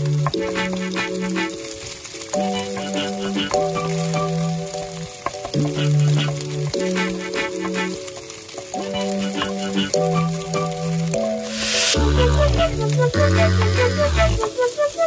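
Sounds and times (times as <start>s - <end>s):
eggs sizzling in hot oil: 0.0s - 14.9s
soft background music: 0.0s - 15.0s.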